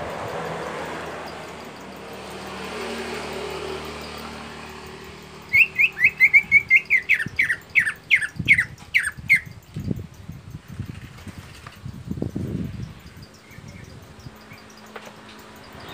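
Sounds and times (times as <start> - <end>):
bird chirping: 5.3 - 10.0, 13.0 - 15.9.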